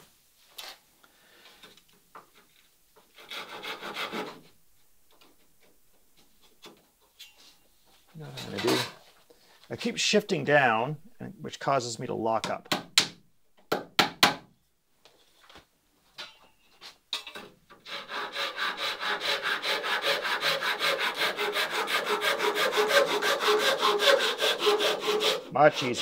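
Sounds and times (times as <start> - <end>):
hand tool cutting wood: 8.3 - 9.0, 17.8 - 26.0.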